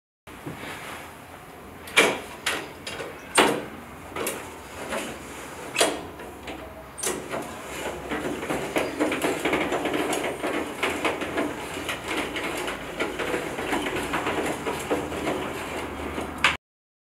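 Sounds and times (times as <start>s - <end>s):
roller shutter slats rattling: 1.8s - 16.6s.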